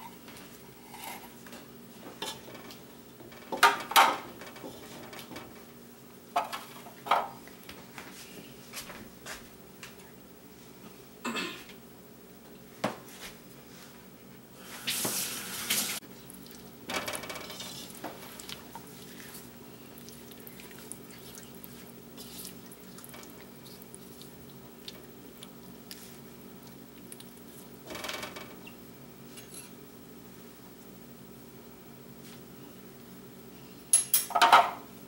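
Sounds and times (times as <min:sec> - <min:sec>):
steady low hum: 0:16.0 - 0:35.0
spatula scraping a pot: 0:17.3 - 0:18.4.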